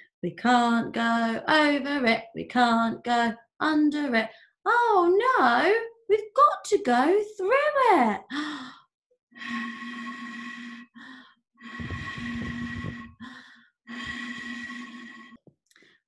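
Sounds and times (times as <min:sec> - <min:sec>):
breathy notes blown across bottle: 0:09.4 - 0:15.4.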